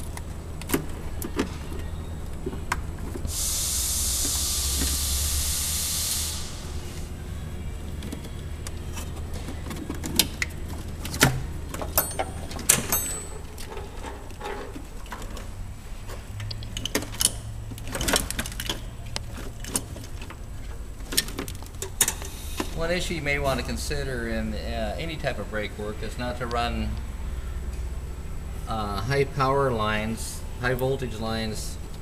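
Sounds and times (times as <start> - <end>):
steady low hum: 0.0 - 32.0
tools clinking on metal: 11.7 - 14.8.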